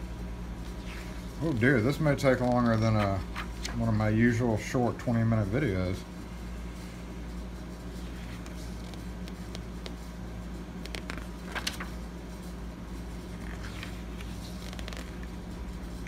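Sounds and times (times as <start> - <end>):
low background hum: 0.0 - 16.0
paper pages rustling: 0.6 - 3.8, 8.0 - 10.0, 10.8 - 12.0, 13.3 - 15.4.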